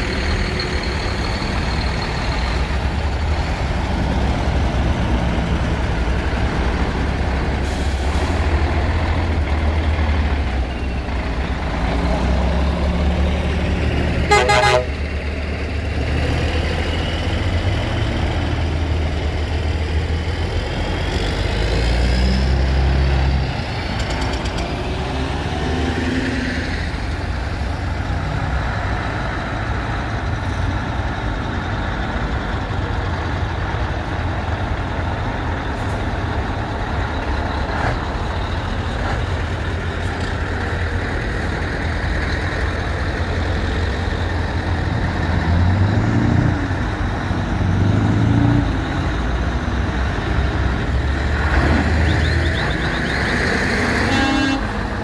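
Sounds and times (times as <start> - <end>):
lorry engines driving past: 0.0 - 55.0
truck horn toot: 14.2 - 15.1, 54.0 - 54.9.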